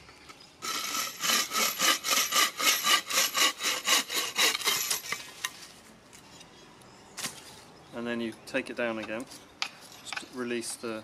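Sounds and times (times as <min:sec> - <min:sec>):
bow saw cutting wood: 0:00.6 - 0:05.3.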